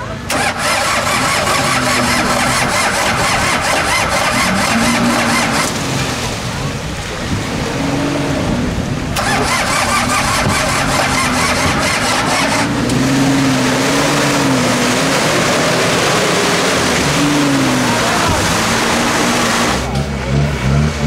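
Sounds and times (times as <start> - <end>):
engines revving: 0.0 - 21.0
fast mechanical rattling: 0.3 - 5.8, 9.2 - 12.7.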